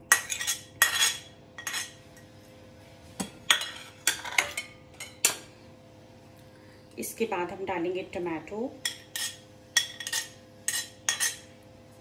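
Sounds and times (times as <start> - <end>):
spoon scraping ceramic plate: 0.1 - 2.3, 8.8 - 11.5.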